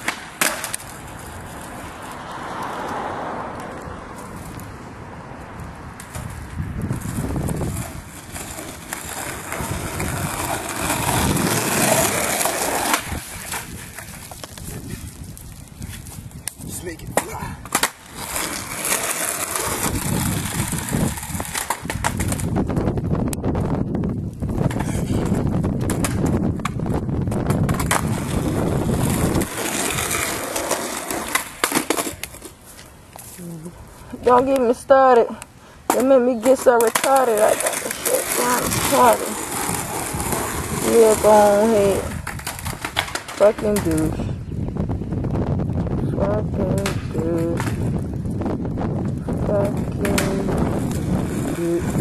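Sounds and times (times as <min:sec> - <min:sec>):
skateboard wheels rolling on asphalt: 0:00.0 - 0:52.0
wind on microphone: 0:03.8 - 0:30.8, 0:38.0 - 0:52.0.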